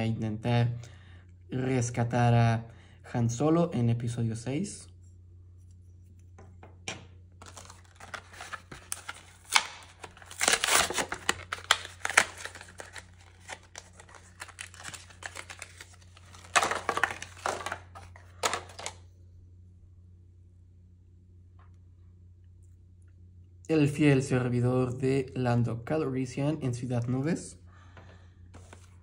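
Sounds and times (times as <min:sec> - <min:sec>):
steady low hum: 0:00.0 - 0:29.0
packaging crinkling and tearing: 0:07.4 - 0:19.0.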